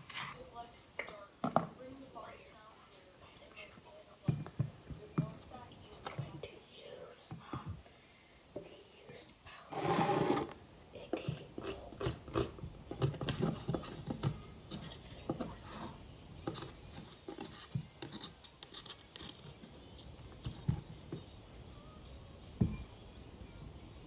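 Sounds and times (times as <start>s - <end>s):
knife scraping eyeshadow: 16.5s - 19.7s.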